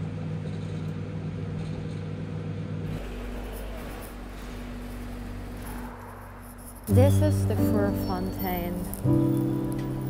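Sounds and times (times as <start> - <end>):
microwave oven hum: 0.0 - 7.4
street noise rumble: 2.7 - 10.0.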